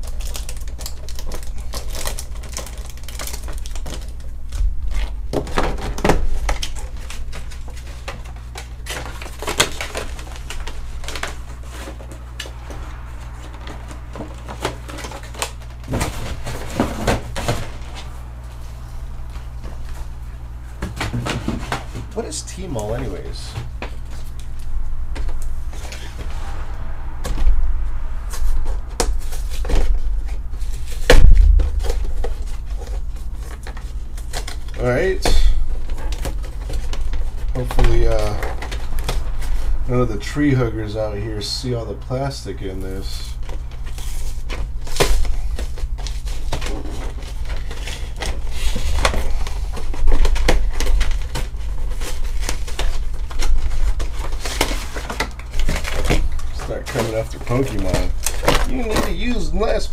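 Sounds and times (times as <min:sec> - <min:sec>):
plastic packaging crinkling: 0:00.0 - 0:12.3
steady low hum: 0:00.0 - 0:59.9.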